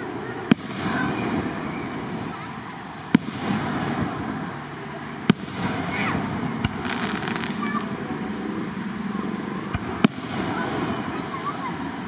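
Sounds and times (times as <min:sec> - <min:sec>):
steady background noise: 0:00.0 - 0:12.0
firework shells bursting: 0:03.0 - 0:08.0.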